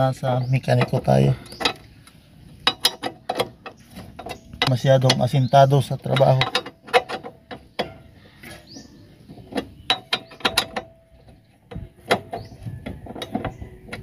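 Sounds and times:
hand tool clicking on metal: 0.8 - 8.6.

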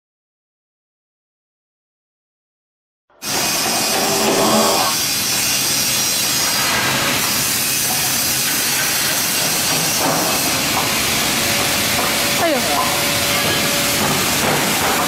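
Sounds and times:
wire stranding machine whirring: 3.2 - 8.8.

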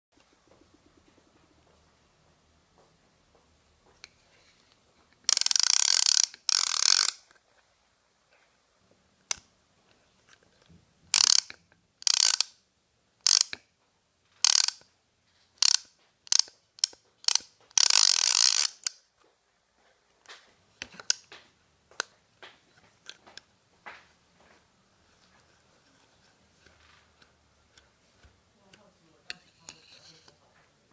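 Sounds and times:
fishing reel ratchet buzzing: 5.3 - 7.2, 11.1 - 12.6, 13.2 - 13.6, 14.4 - 14.8, 15.6 - 19.0.

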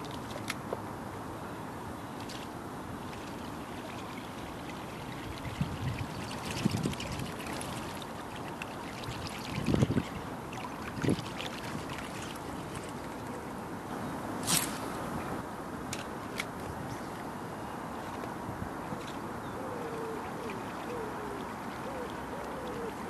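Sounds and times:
steady low hiss: 0.0 - 23.0
water splashes: 2.2 - 13.7, 20.1 - 23.0
lure blade churning water: 3.0 - 13.3.

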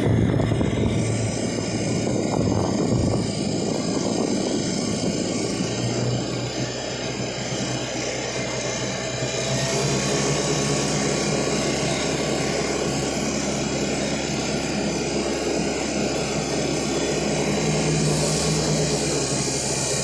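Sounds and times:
engine drone: 0.0 - 20.0.

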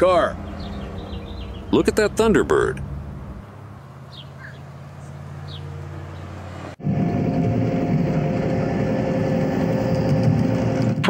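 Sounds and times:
faint bird chirps: 4.1 - 5.7
diesel locomotive rumble: 4.8 - 11.0
car engine idling: 6.8 - 11.0.

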